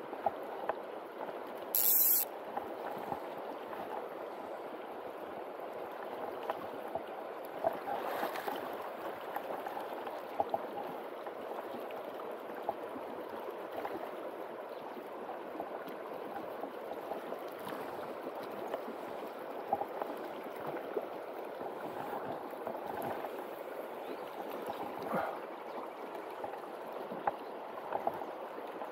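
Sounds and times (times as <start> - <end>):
small water splashes: 6.1 - 28.9.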